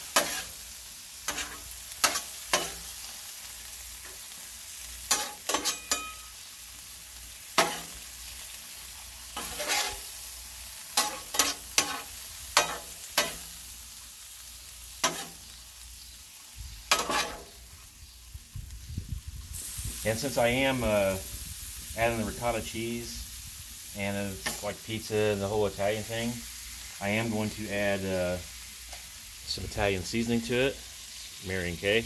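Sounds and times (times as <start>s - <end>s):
metal spatula scraping griddle: 0.0s - 3.1s, 5.0s - 6.4s, 7.5s - 8.1s, 9.2s - 13.5s, 15.0s - 15.6s, 16.9s - 17.8s, 24.4s - 25.8s
food sizzling on griddle: 0.0s - 32.0s.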